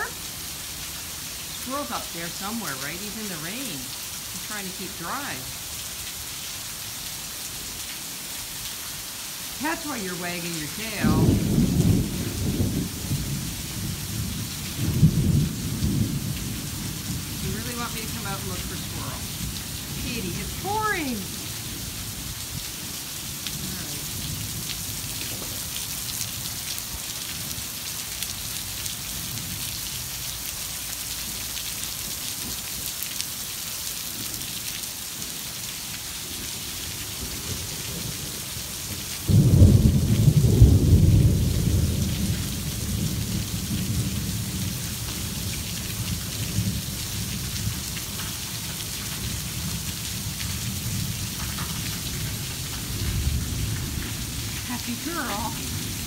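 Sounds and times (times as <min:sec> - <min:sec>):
torrential rain pouring: 0:00.0 - 0:56.0
thunder clap and rumble: 0:11.0 - 0:20.6, 0:37.1 - 0:48.3, 0:49.0 - 0:56.0.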